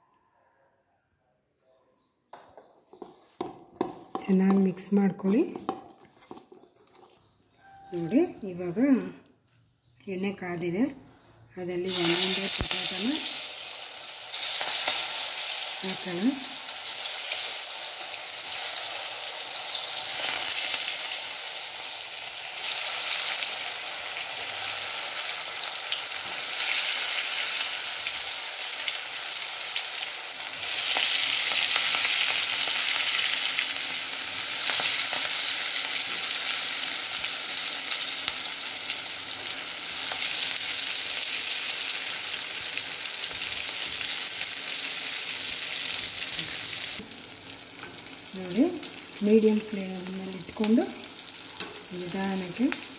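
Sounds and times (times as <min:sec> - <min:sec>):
potatoes deep-frying in oil: 0:11.8 - 0:52.9.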